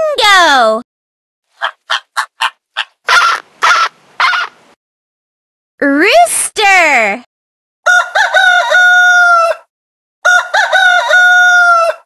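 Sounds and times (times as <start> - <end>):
rooster crowing: 3.1 - 4.5, 7.8 - 12.0.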